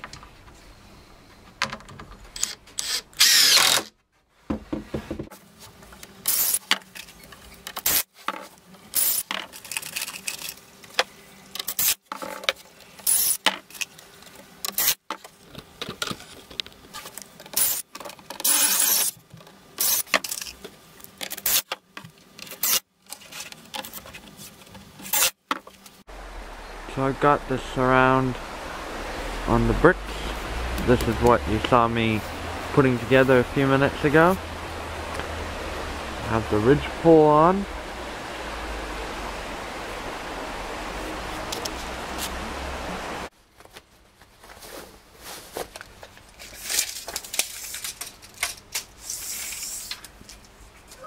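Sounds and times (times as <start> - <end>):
impact driver driving screws: 2.4 - 3.9, 18.4 - 19.1
boards knocking and rubbing: 4.5 - 5.4.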